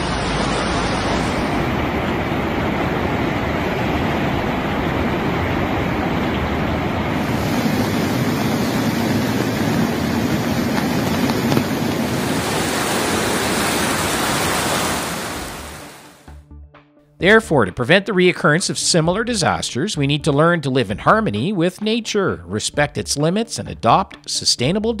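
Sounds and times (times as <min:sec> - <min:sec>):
muddy river rushing: 0:00.0 - 0:16.2.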